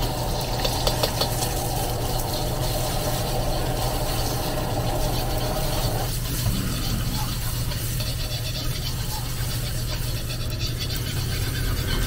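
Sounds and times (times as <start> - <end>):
eggs sizzling in hot oil: 0.0 - 12.0
metal ladle stirring: 2.1 - 12.0
steady low roar: 4.8 - 7.6.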